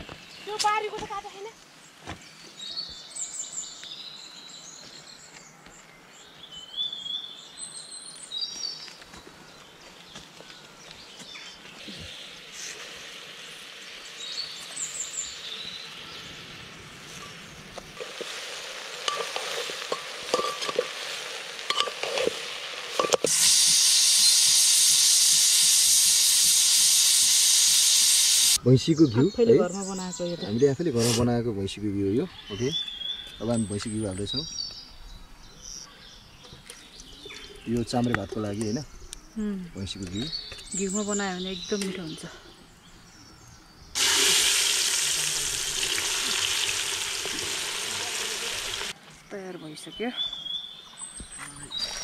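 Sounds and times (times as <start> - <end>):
birds chirping faintly: 0.0 - 23.3, 28.6 - 45.0, 45.6 - 52.0
food sizzling in oil: 12.1 - 28.6, 44.0 - 49.0
utensils clinking and scraping: 18.0 - 23.4.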